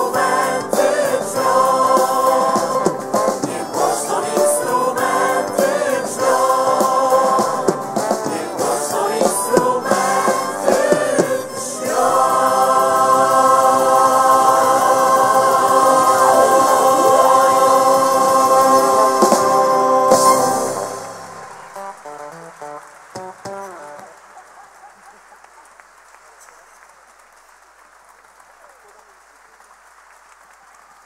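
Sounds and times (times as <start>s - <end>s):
vocal ensemble singing in harmony: 0.0s - 21.6s
violins: 0.0s - 22.0s.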